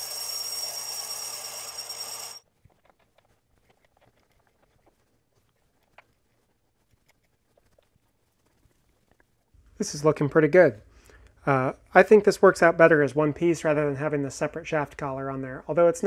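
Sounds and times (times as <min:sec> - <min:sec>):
metal lathe whining: 0:00.0 - 0:02.4.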